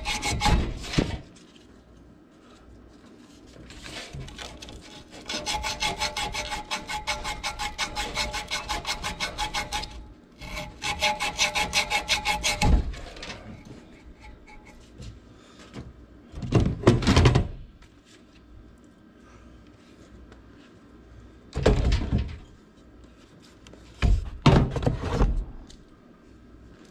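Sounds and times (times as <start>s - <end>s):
rough scraping clatter: 0.0s - 1.5s, 3.5s - 15.0s
thump: 24.0s - 24.9s.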